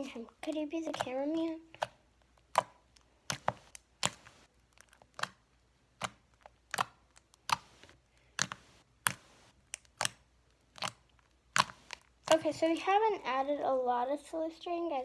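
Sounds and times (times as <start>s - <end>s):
slime clicking and popping: 0.4s - 12.4s.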